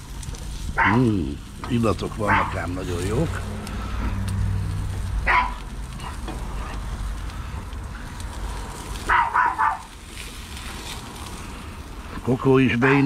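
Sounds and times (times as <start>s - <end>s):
dog barking: 0.8s - 1.0s, 2.2s - 2.6s, 5.2s - 5.6s, 9.1s - 9.9s.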